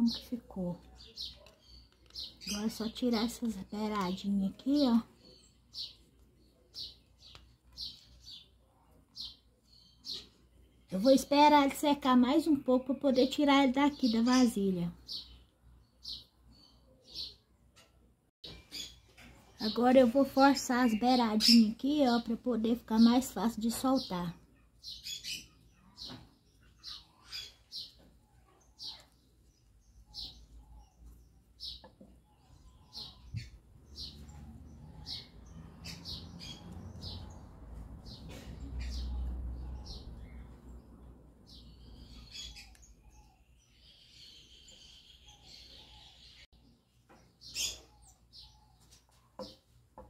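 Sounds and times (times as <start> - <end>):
parakeets chirping: 29.7 - 46.4.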